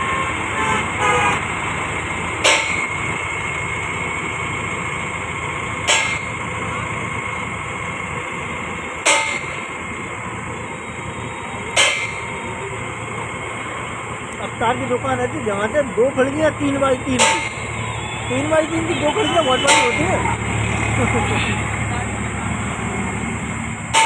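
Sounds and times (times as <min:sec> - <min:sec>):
tractor engine idling: 0:00.0 - 0:24.0
sharp metallic clang: 0:02.4 - 0:02.9, 0:05.8 - 0:06.4, 0:09.0 - 0:09.6, 0:11.7 - 0:12.4, 0:17.2 - 0:17.7, 0:19.6 - 0:20.2.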